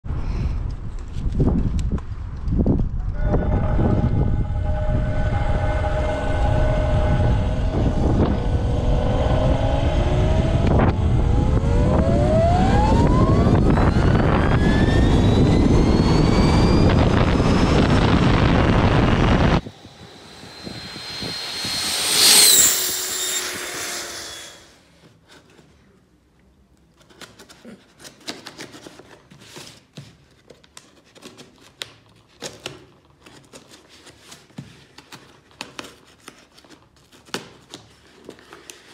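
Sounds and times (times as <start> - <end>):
loud rushing noise: 3.1 - 24.7
electric motor whine: 3.2 - 24.7.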